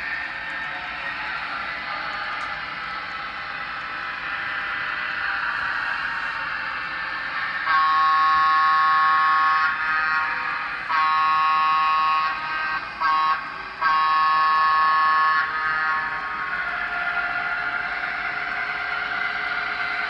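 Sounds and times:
model train horn through speaker: 7.3 - 20.0.

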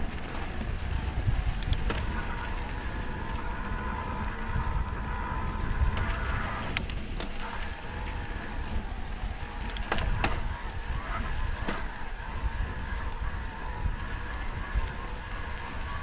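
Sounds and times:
wind rumbling on microphone: 0.0 - 16.0
sharp clicks: 1.5 - 2.1, 6.7 - 7.4, 9.6 - 10.4.

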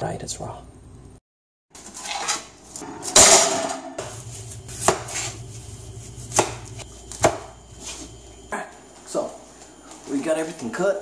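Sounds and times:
knife cutting apple: 4.4 - 7.5.

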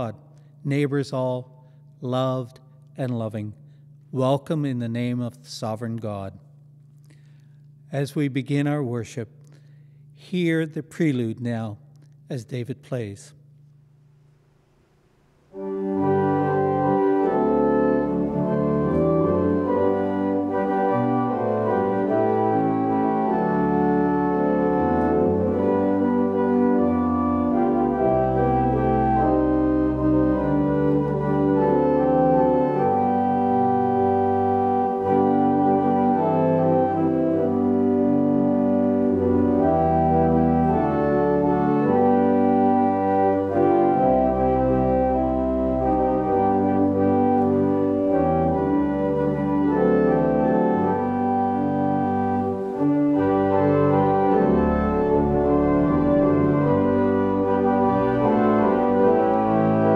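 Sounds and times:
church organ playing chords: 0.0 - 59.9.

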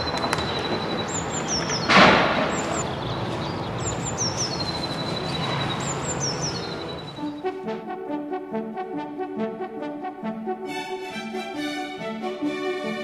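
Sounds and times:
bird singing high notes and trill: 0.0 - 7.6.

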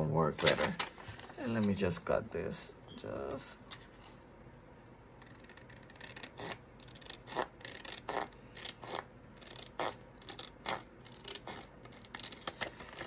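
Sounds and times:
scissors cutting paper: 5.2 - 13.0.

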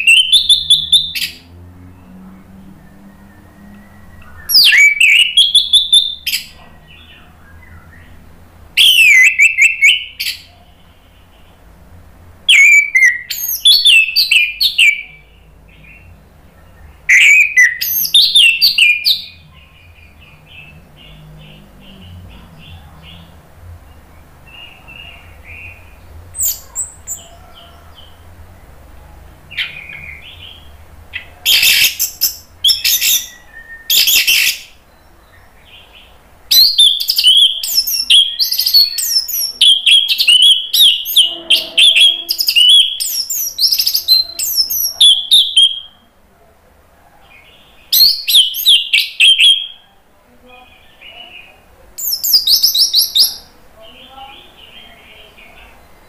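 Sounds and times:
thrush singing: 12.4 - 46.1.

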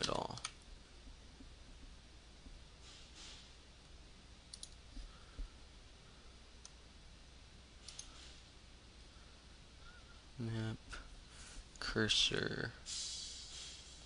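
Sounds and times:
quiet hiss: 0.0 - 14.0
computer mouse clicks: 4.5 - 4.8, 7.8 - 8.3.

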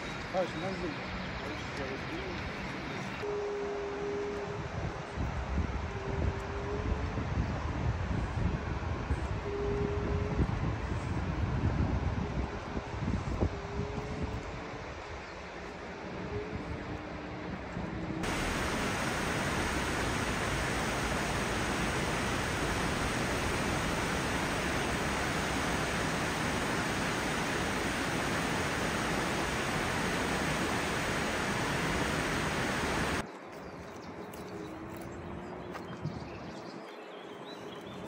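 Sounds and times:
quiet outdoor ambience: 14.8 - 35.9
river rushing over rocks: 18.2 - 33.2.

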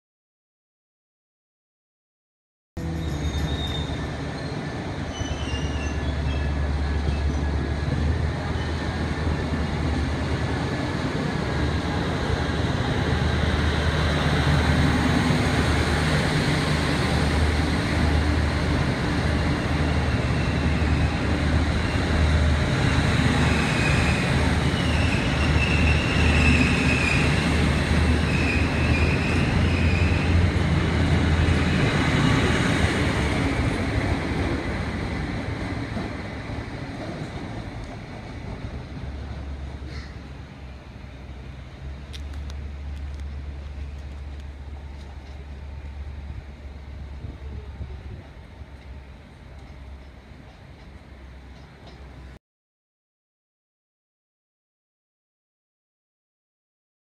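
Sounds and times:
wheels squealing on rail: 2.8 - 9.2, 22.7 - 30.7
diesel train engines rumbling: 2.8 - 52.4.

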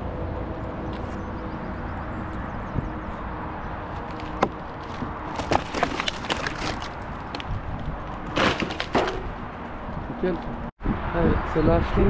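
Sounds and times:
low engine hum: 0.0 - 5.7
dry wood cracking and snapping: 3.8 - 9.6.

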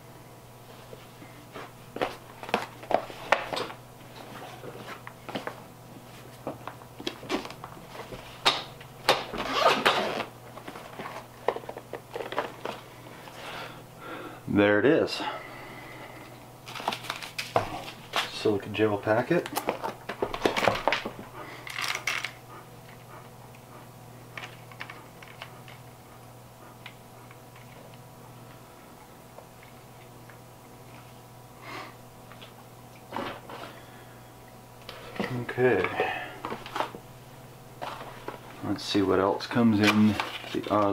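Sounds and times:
steady low hum: 0.0 - 40.9
zipper being pulled open: 9.4 - 10.3.

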